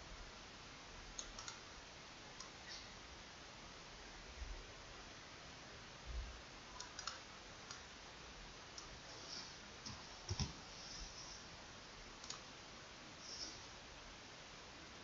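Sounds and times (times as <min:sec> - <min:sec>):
steady hiss: 0:00.0 - 0:15.0
computer mouse clicks: 0:01.2 - 0:01.6, 0:02.4 - 0:02.9, 0:06.7 - 0:07.9, 0:12.2 - 0:12.5.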